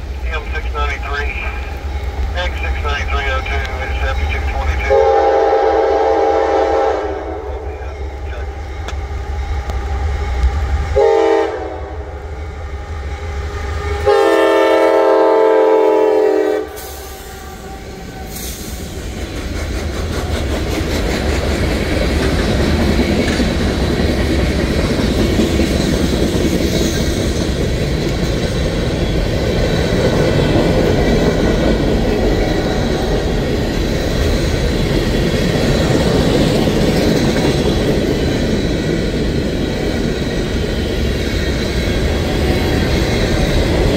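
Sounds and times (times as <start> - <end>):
train horn blasts: 4.8 - 7.8, 11.0 - 12.3, 13.8 - 18.0
freight cars rumbling on rails: 16.9 - 43.9
wheels clickety-clack: 18.8 - 43.9.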